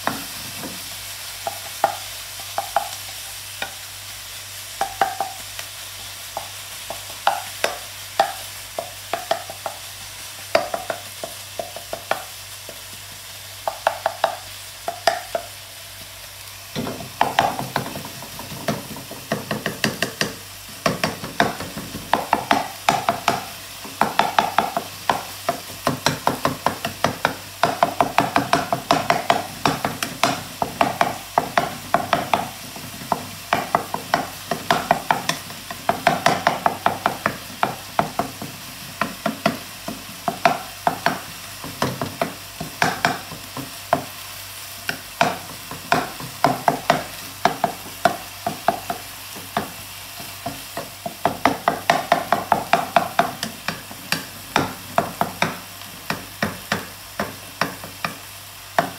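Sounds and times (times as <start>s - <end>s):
meat sizzling: 0.0s - 58.9s.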